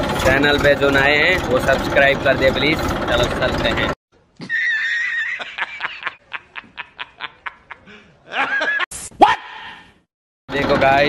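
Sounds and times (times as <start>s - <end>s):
man laughing heartily: 4.4s - 8.9s.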